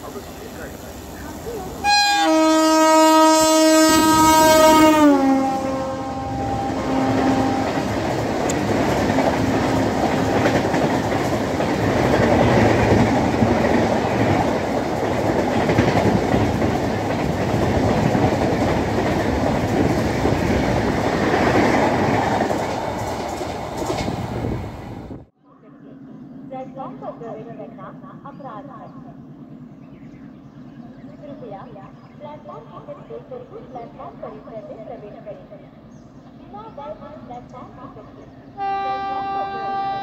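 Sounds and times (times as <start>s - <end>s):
train horn: 1.8s - 8.2s, 9.1s - 10.8s, 38.6s - 40.0s
train coaches clickety-clack: 6.4s - 25.2s.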